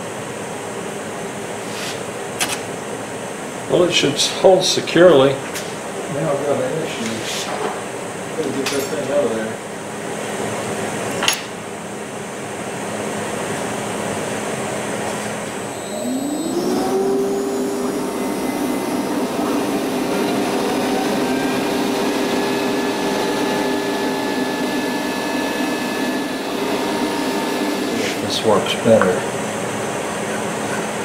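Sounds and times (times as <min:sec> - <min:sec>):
dust extraction running: 0:14.6 - 0:31.0
router spindle whine: 0:15.5 - 0:28.5.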